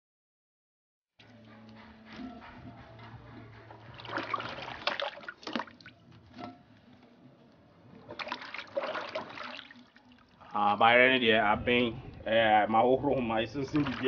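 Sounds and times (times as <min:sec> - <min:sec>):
hands sloshing in water: 0:03.9 - 0:06.5, 0:08.0 - 0:10.5, 0:13.6 - 0:14.0
water splashing: 0:03.9 - 0:06.6, 0:07.9 - 0:10.8, 0:13.4 - 0:14.0.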